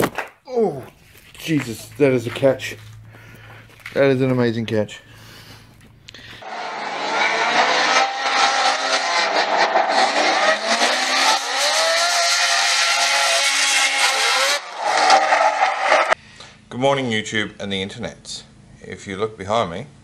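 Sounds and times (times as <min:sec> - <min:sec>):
car engines revving: 0:06.4 - 0:16.2.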